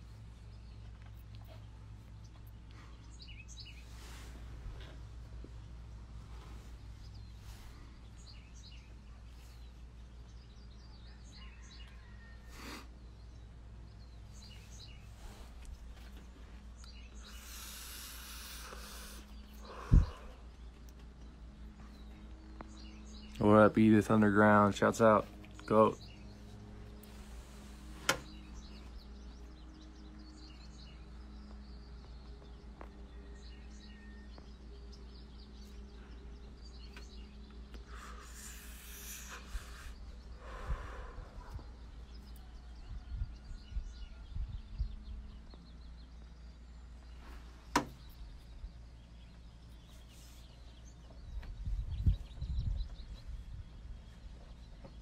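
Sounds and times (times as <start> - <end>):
birds chirping faintly: 0.0 - 55.0
person smoking and exhaling: 12.5 - 13.0, 17.2 - 20.6, 37.8 - 41.6.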